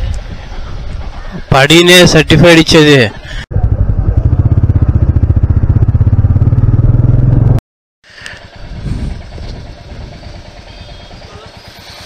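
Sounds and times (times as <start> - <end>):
quiet street sound: 0.0 - 12.0
motorcycle engine running: 3.2 - 12.0.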